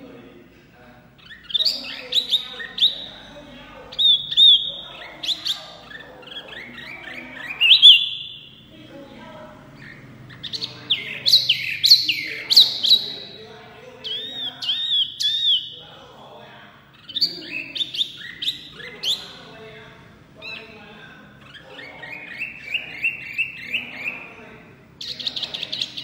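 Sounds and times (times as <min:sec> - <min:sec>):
bird singing whistled phrases: 0:03.9 - 0:08.6, 0:14.0 - 0:15.8, 0:17.0 - 0:19.4.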